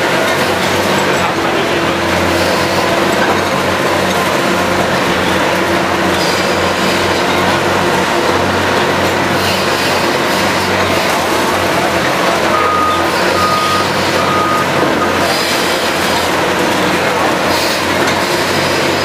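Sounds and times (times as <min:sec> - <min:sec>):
excavator machine rumble: 0:00.0 - 0:19.0
warning beeper beeps: 0:12.5 - 0:15.2.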